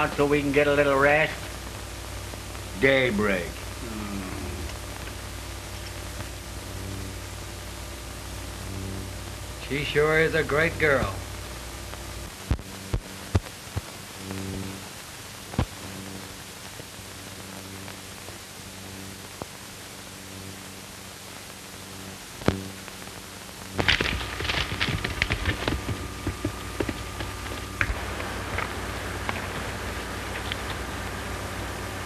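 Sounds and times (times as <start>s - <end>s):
film track hiss and hum: 0.0s - 32.0s
horses' hooves on dirt: 23.8s - 30.9s.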